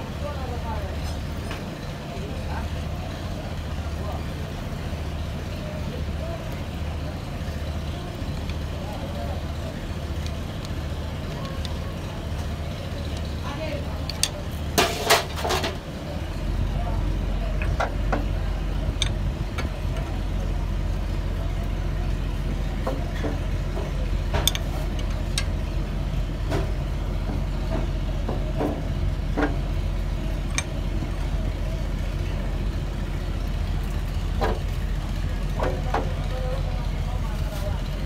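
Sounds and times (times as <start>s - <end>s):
engine idling: 0.0s - 38.0s
light metallic clicks and taps: 22.8s - 25.6s, 30.5s - 30.7s.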